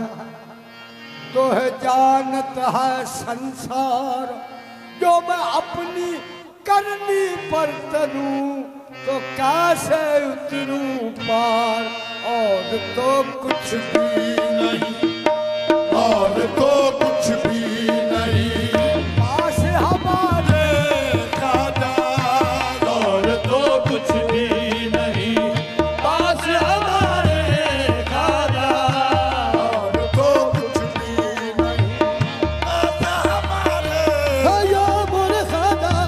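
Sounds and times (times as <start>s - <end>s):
held instrumental notes: 12.2s - 36.0s
person singing: 15.9s - 36.0s.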